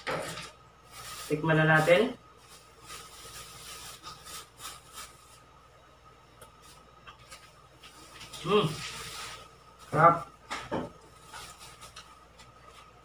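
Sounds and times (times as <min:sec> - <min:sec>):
fried pastry crackling: 0:00.0 - 0:05.5.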